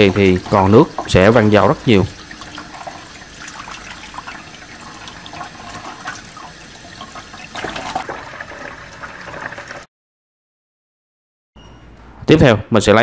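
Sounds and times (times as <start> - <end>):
tap water splashing into basin: 0.0 - 9.8.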